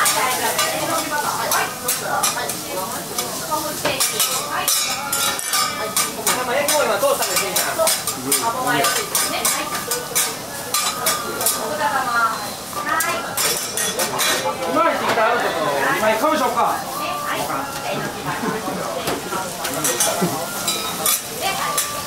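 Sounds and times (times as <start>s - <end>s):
metal spatulas scraping griddle: 0.0s - 11.7s, 17.0s - 22.0s
food sizzling: 0.0s - 22.0s.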